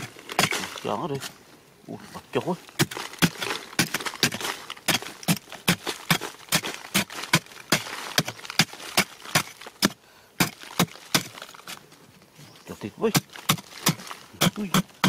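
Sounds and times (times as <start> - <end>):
earth crumbling: 0.0 - 1.4, 2.2 - 15.0.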